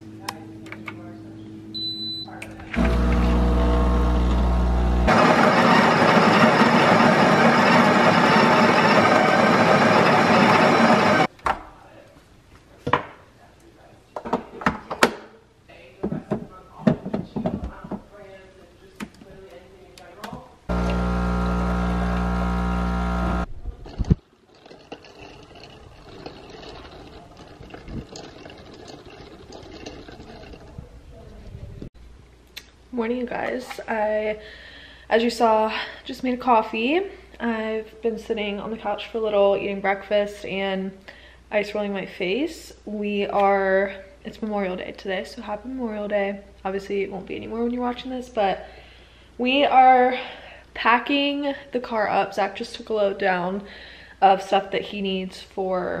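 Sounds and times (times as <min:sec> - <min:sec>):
coffee grinder grinding beans: 0:02.8 - 0:11.3, 0:20.7 - 0:23.5
espresso machine humming: 0:02.8 - 0:11.3, 0:20.7 - 0:23.5
liquid and ice in a glass: 0:23.9 - 0:30.9.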